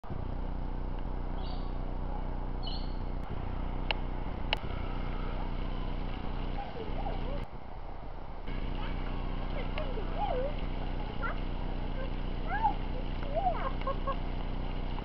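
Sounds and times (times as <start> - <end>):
low machine hum: 0.0 - 15.0
bird chirps: 1.4 - 1.8, 2.6 - 3.1.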